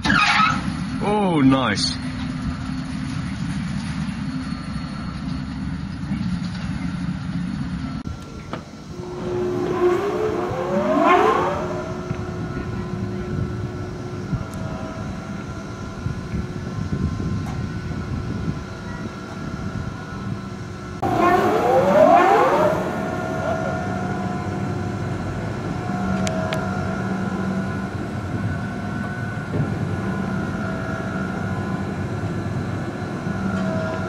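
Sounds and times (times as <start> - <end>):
pump motor low rumble: 8.1 - 34.0
motor whine rising in pitch: 8.8 - 34.0.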